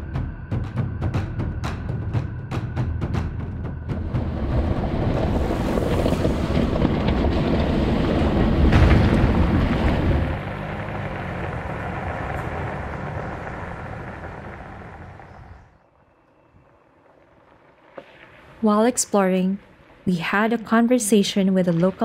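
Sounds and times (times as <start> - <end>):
wind buffeting microphone: 3.8 - 17.4
vehicle driving past on gravel: 3.9 - 18.6.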